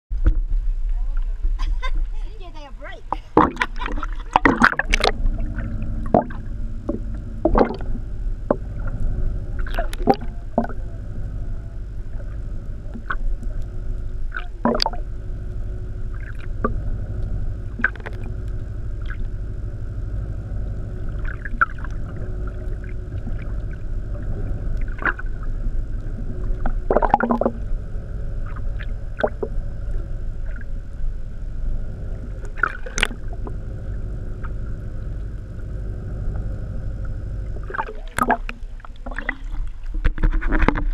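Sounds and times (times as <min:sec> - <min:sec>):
underwater rumble and hum: 0:00.1 - 0:40.9
splashes: 0:03.2 - 0:06.5, 0:07.4 - 0:08.9, 0:09.6 - 0:10.8, 0:14.3 - 0:15.1, 0:16.1 - 0:16.8, 0:21.0 - 0:27.6, 0:32.4 - 0:33.6, 0:37.5 - 0:40.9
underwater clicks and knocks: 0:03.4 - 0:10.8, 0:12.0 - 0:13.7, 0:14.3 - 0:15.1, 0:16.1 - 0:16.9, 0:17.7 - 0:19.3, 0:21.1 - 0:27.7, 0:28.4 - 0:30.7, 0:32.1 - 0:33.6, 0:36.3 - 0:40.9.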